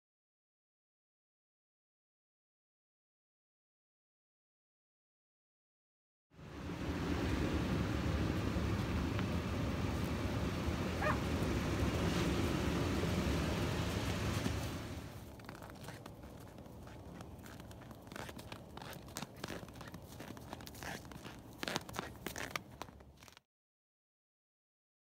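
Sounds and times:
wind rumble on microphone: 6.4s - 18.9s
footsteps crunching in snow: 8.7s - 23.4s.

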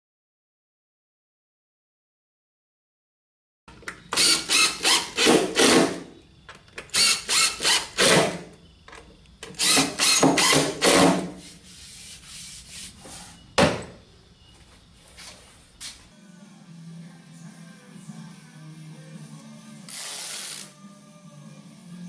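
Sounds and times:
impact driver driving screws: 4.1s - 6.0s, 6.8s - 8.4s, 9.4s - 11.3s.

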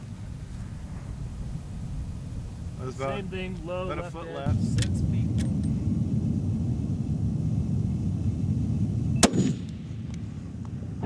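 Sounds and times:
steady low rumble: 0.0s - 11.0s
rifle shot with echo: 9.2s - 10.1s.

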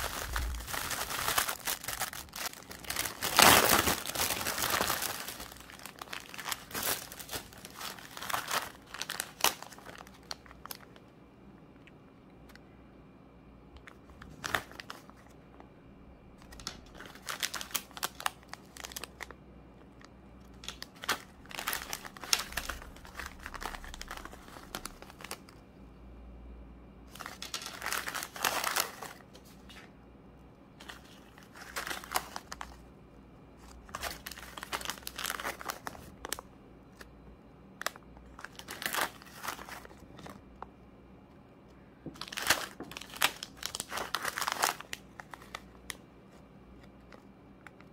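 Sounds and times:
plastic bags crinkling: 0.0s - 11.0s, 16.4s - 19.4s, 20.5s - 25.6s, 27.1s - 29.8s, 30.8s - 32.8s, 33.6s - 37.1s, 37.8s - 40.4s, 42.0s - 46.0s.

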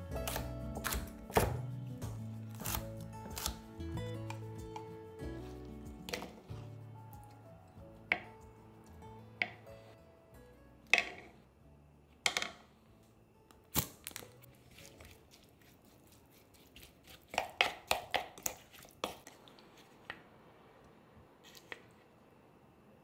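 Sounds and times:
wooden spoon knocking on wooden bowl: 8.1s - 8.4s.

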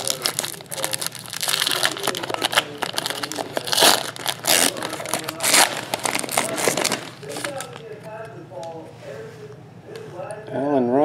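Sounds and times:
foil pack crinkling: 0.0s - 8.1s.

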